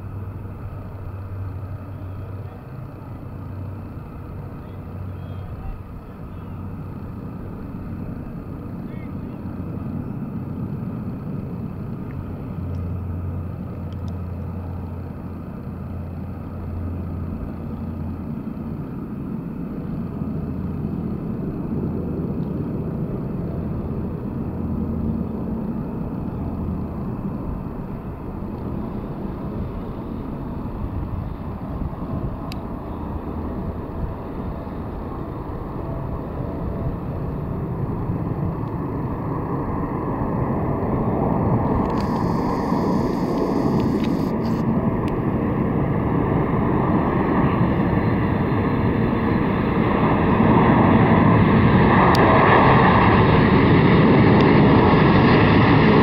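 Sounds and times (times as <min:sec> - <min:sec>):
jet engines low rumble: 0:00.0 - 0:56.0.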